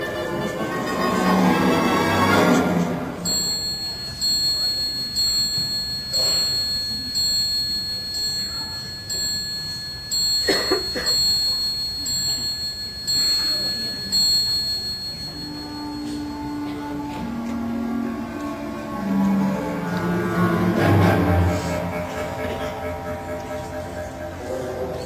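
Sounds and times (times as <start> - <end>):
high bell-like ring: 2.3 - 17.2
clock chime striking: 2.6 - 17.5.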